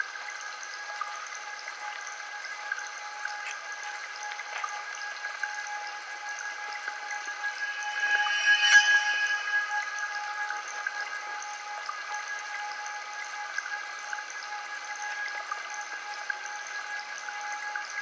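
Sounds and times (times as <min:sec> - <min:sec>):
faint crackling hiss: 0:00.0 - 0:13.6
bowl bell ringing: 0:07.2 - 0:10.7.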